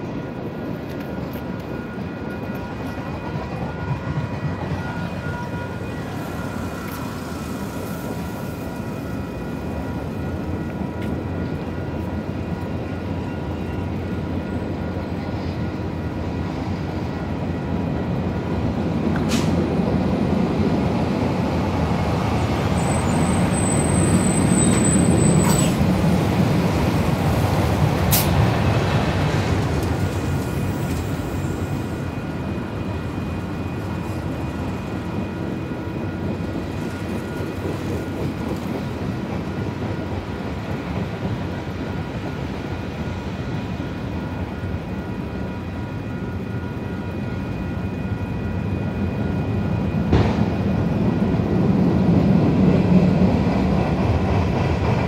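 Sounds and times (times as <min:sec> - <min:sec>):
train wheels rumbling on rails: 0:00.0 - 0:55.0
high-pitched wheel squeal: 0:22.8 - 0:25.8.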